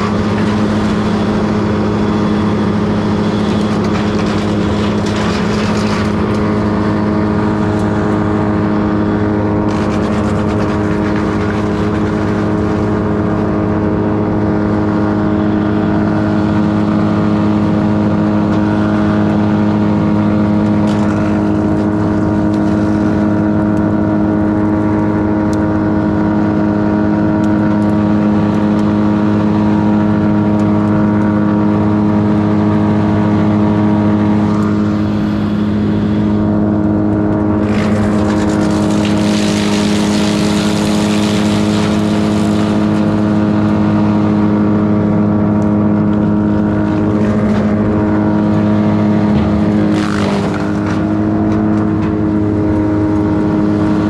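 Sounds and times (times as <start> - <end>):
wood chipper engine running: 0.0 - 54.0
branches being chipped: 37.2 - 44.0, 45.6 - 53.5.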